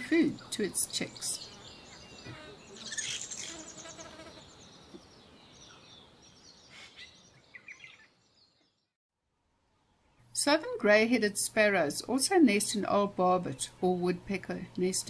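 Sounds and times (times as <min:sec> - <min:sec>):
starlings chirping: 0:00.2 - 0:08.9.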